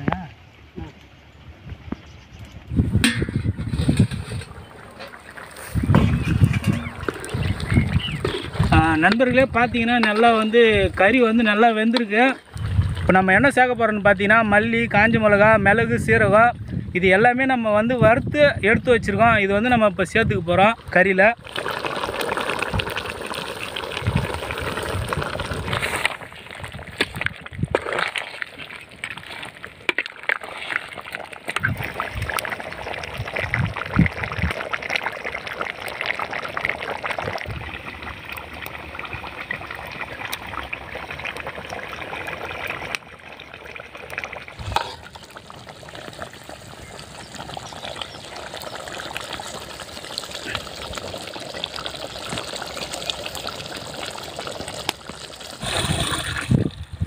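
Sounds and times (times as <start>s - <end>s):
curry bubbling in a pot: 2.8s - 14.0s, 18.8s - 57.0s
ladle stirring: 3.0s - 9.2s, 25.4s - 32.5s, 44.6s - 46.0s.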